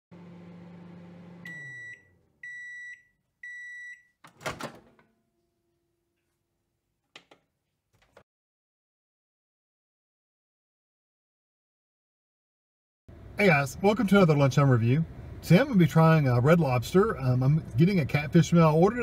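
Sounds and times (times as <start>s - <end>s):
microwave running hum: 0.1s - 5.2s
microwave door clunk: 4.3s - 5.1s.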